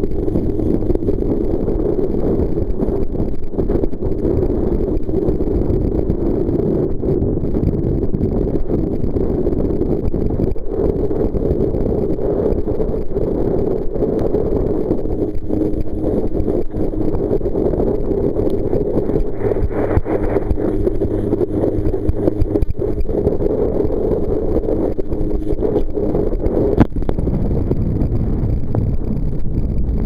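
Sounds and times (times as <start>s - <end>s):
rush of wind and water: 0.0s - 30.0s.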